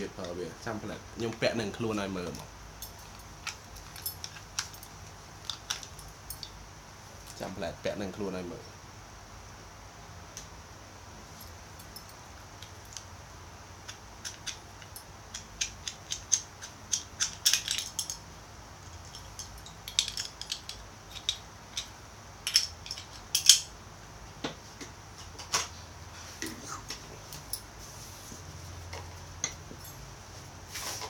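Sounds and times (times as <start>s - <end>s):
small hard parts clicking: 2.3s - 6.6s, 13.8s - 23.7s.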